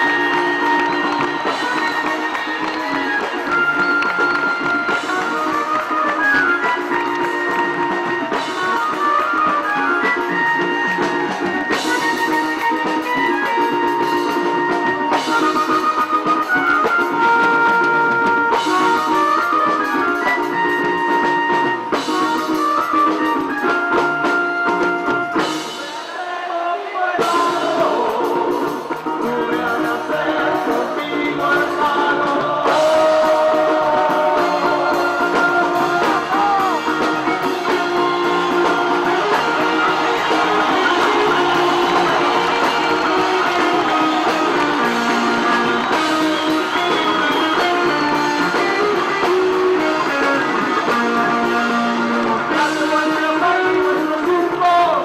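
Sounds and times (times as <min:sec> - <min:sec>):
rock band playing live: 0:00.0 - 0:26.4, 0:27.1 - 0:55.0
crowd singing along: 0:25.8 - 0:49.3.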